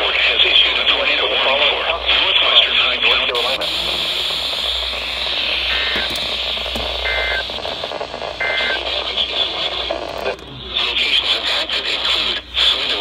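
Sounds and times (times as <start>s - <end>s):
radio static hiss: 0.0s - 13.0s
short electronic beeps: 7.0s - 7.5s, 8.4s - 8.8s.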